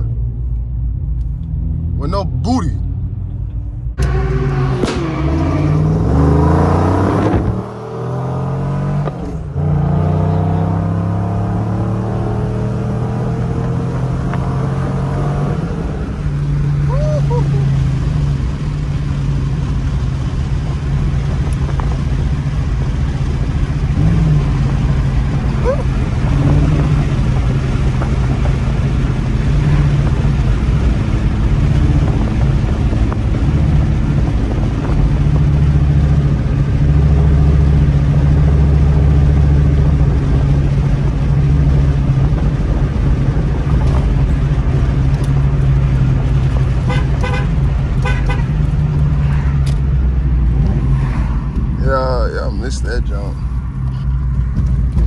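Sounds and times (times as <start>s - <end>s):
car exhaust drone from inside: 13.0s - 55.0s.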